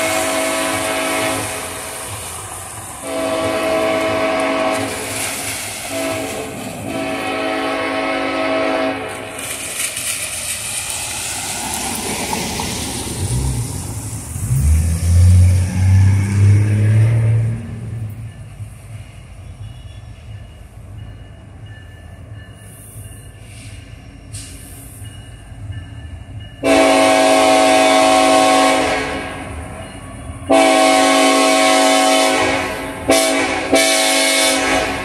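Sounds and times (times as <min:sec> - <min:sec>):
locomotive horn blasts: 0:00.0 - 0:02.0, 0:03.0 - 0:05.3, 0:05.9 - 0:09.4, 0:26.6 - 0:29.5, 0:30.5 - 0:35.0
diesel locomotive engine rumbling: 0:00.0 - 0:35.0.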